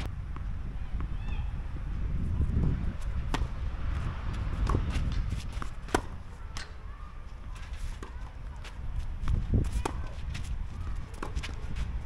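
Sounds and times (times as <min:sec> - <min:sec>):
racket striking tennis ball: 0:04.6 - 0:06.8.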